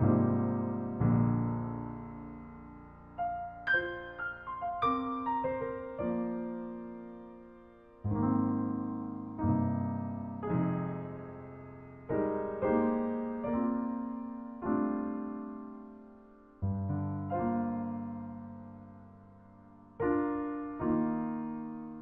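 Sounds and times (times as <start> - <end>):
slow gentle piano music: 0.0 - 22.0.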